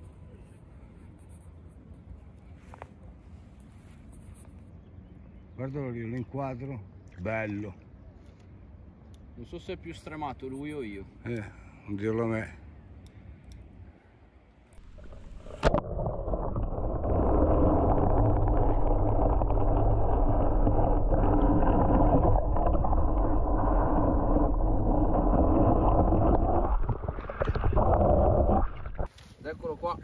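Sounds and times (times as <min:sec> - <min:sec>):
muffled river water rushing: 0:14.6 - 0:29.2.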